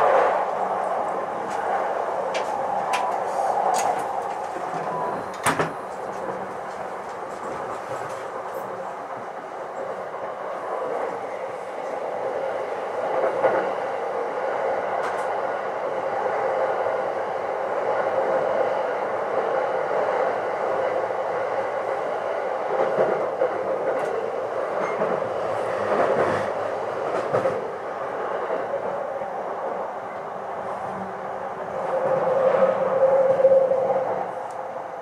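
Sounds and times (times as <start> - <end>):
train wheels rumbling on rail: 0.0 - 35.0
track clicks and knocks: 2.3 - 8.6.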